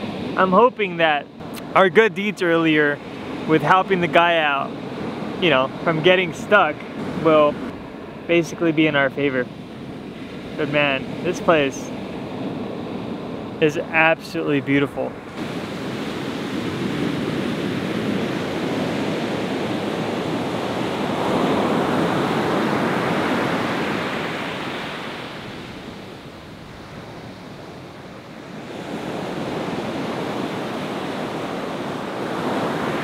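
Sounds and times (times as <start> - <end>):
ocean surf washing onto beach: 0.0 - 33.0.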